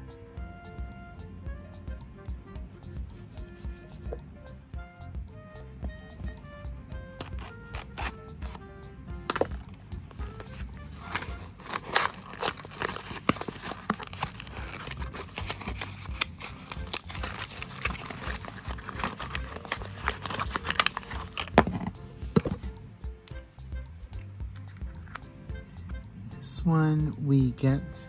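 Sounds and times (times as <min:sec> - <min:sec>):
cardboard box crinkling: 0:07.2 - 0:08.6, 0:10.3 - 0:22.6.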